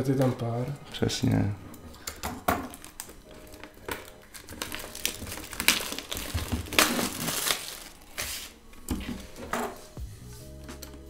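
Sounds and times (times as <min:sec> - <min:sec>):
cardboard crumpling and crinkling: 0:02.7 - 0:09.5.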